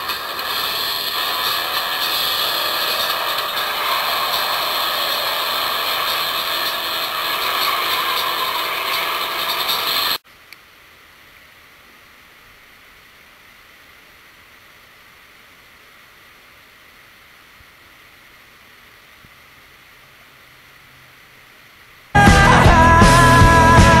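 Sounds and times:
loud mechanical clatter: 0:00.0 - 0:10.2
faint steady hiss: 0:10.2 - 0:22.2
small click: 0:10.5 - 0:10.7.

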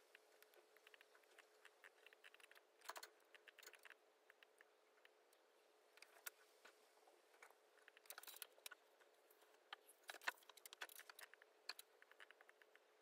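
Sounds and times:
faint steady hum: 0:00.0 - 0:13.0
laptop keyboard and mouse clicks: 0:00.1 - 0:04.5.

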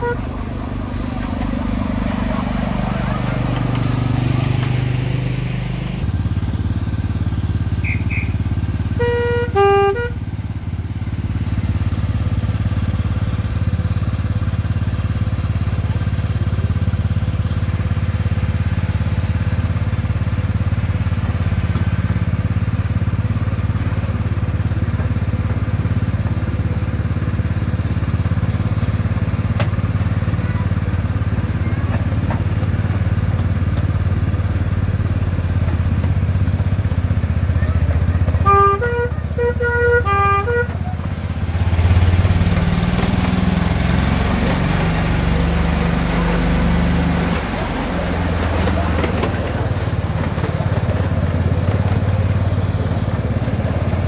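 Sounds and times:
locomotive horn two-note blast: 0:00.0 - 0:00.5, 0:07.8 - 0:10.2, 0:38.3 - 0:41.0.

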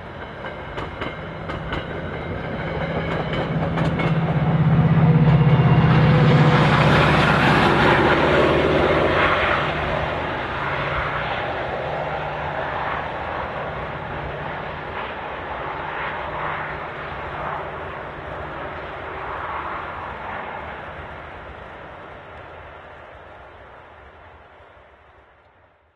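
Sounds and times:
diesel locomotive passing: 0:00.0 - 0:25.8.

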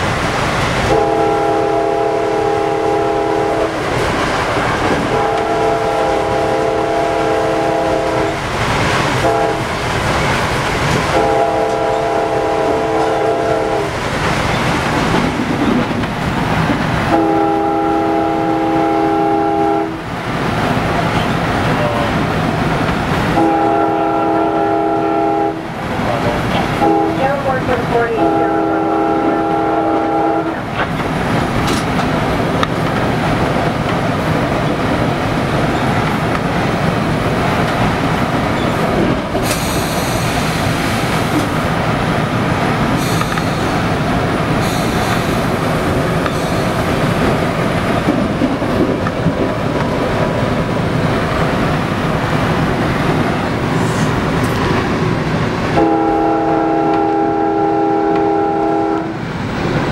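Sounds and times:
train running rumble and rattle: 0:00.0 - 0:59.9
train horn chord: 0:00.9 - 0:03.8, 0:05.1 - 0:08.3, 0:09.2 - 0:09.6, 0:11.1 - 0:13.9, 0:17.1 - 0:20.0, 0:23.4 - 0:25.7, 0:26.8 - 0:30.6, 0:55.8 - 0:59.2.

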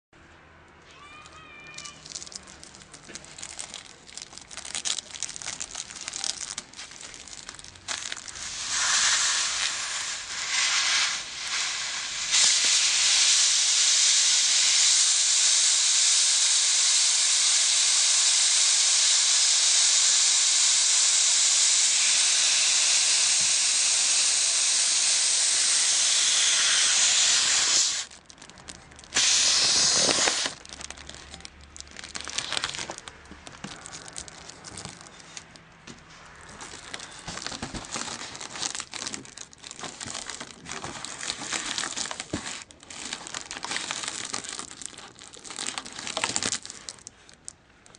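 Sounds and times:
foil balloon crinkling: 0:00.9 - 0:13.2, 0:26.4 - 0:47.9
gas hissing into foil balloon: 0:07.3 - 0:28.2, 0:29.1 - 0:30.6.

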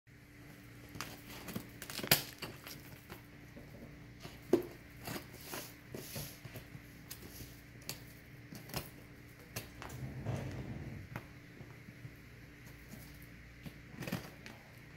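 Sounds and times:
tape crinkling and tearing: 0:00.9 - 0:03.3.

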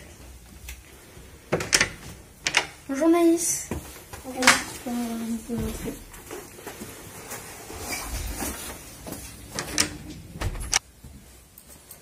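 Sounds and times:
door clicks and knocks: 0:01.5 - 0:02.8, 0:09.5 - 0:10.8
door shutting thump: 0:09.6 - 0:10.8.

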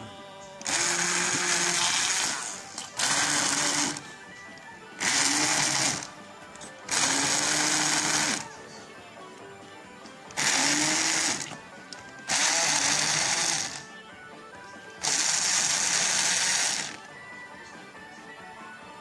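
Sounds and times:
stick blender running: 0:00.0 - 0:08.6, 0:10.3 - 0:14.0, 0:15.0 - 0:17.2.

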